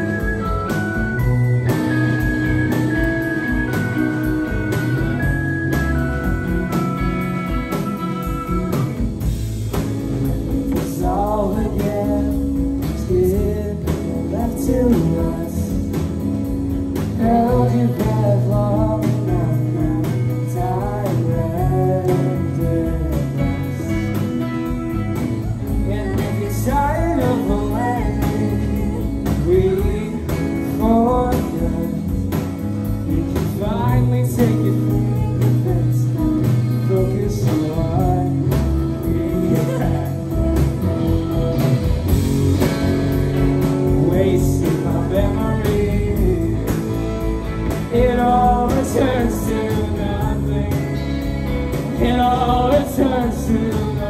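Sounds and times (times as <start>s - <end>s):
bass guitar: 0.0s - 54.0s
drum kit: 0.0s - 54.0s
electric guitars: 0.0s - 54.0s
person singing: 10.2s - 16.2s, 17.0s - 32.5s, 33.1s - 41.8s, 43.5s - 54.0s.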